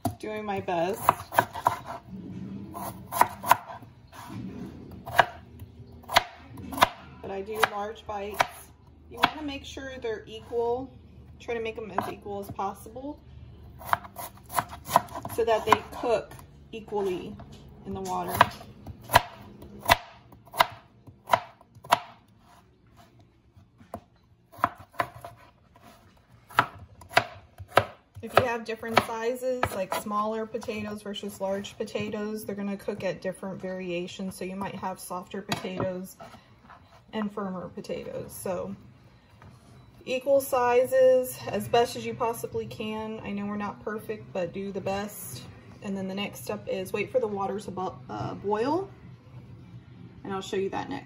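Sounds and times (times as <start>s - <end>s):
knife chopping on plastic board: 18.2s - 22.2s, 23.9s - 30.0s.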